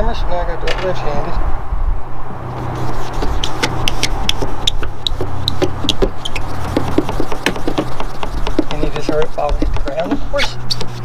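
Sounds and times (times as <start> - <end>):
short scratchy swipes: 2.4 - 11.0
cloth pad rubbing plastic: 2.5 - 11.0.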